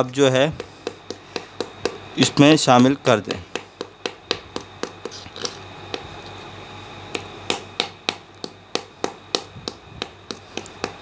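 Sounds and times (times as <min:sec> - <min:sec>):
stone pestle knocking on grinding stone: 0:00.4 - 0:02.1, 0:03.4 - 0:06.1, 0:07.1 - 0:11.0.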